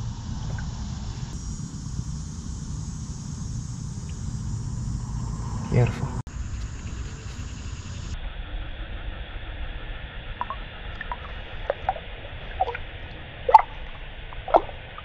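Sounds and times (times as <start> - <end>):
water splashes and drips: 10.4 - 15.0.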